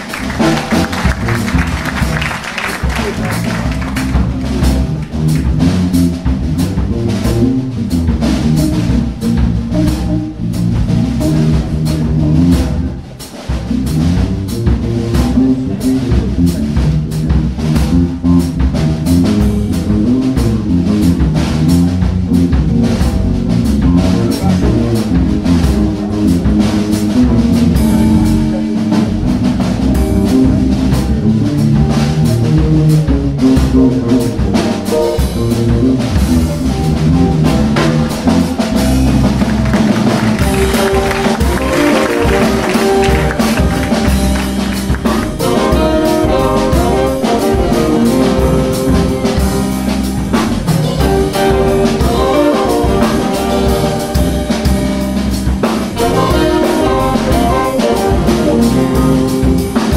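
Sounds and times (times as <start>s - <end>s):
bass line: 0.0s - 59.9s
drum kit beat: 0.0s - 59.9s
electric guitar: 19.0s - 59.9s.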